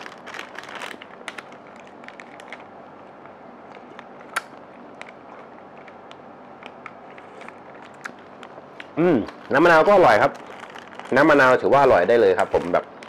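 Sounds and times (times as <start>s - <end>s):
plastic pouch handling clicks: 0.0s - 2.7s, 10.2s - 11.4s
low background noise: 0.0s - 13.0s.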